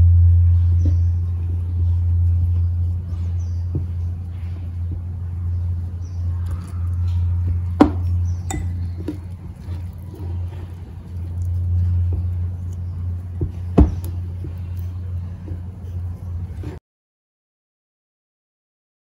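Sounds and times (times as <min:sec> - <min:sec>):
steady low hum: 0:00.0 - 0:16.8
hands kneading dough: 0:00.7 - 0:16.8
clinks against ceramic bowl: 0:08.4 - 0:09.2.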